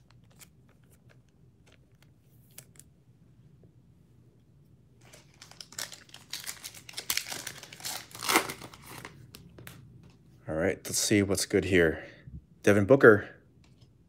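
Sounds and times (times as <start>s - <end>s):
foil card pack crinkling: 5.0s - 9.2s.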